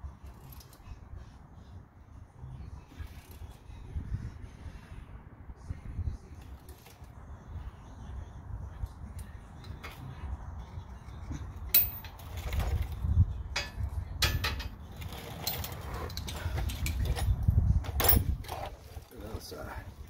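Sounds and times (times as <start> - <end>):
steady low rumble: 0.0 - 15.1, 15.8 - 20.0
tools clicking and knocking: 11.7 - 12.8, 13.6 - 18.3.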